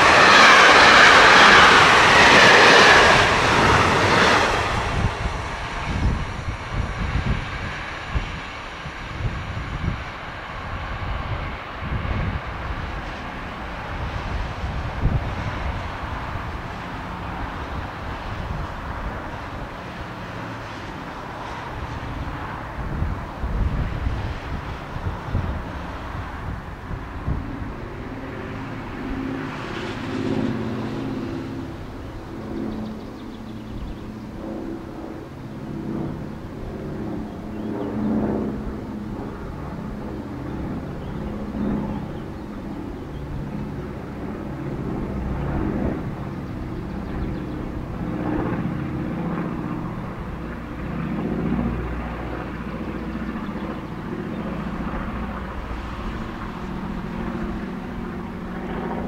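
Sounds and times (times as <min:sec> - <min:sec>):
passing vehicle engines: 0:00.0 - 0:59.0
steady background hum: 0:00.0 - 0:59.0.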